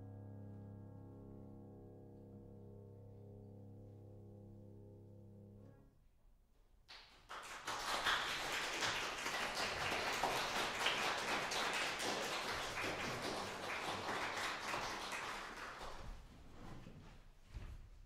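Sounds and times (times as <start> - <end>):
audience applauding: 6.9 - 16.3.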